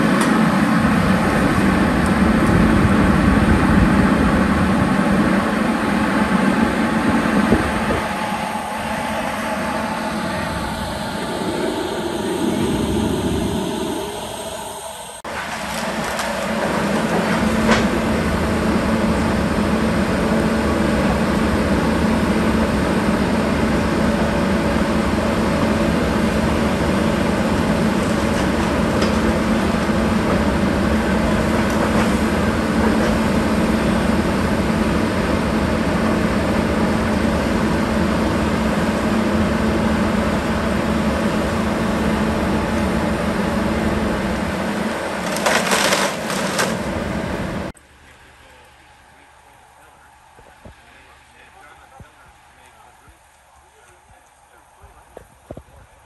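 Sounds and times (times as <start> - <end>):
excavator diesel engine droning: 0.0 - 55.3
debris cracking and knocking: 45.2 - 46.8.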